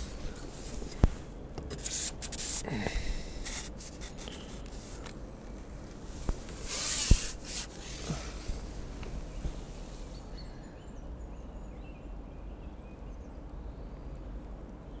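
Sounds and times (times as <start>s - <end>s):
rustling handling noises: 0.0s - 2.7s, 3.4s - 10.2s.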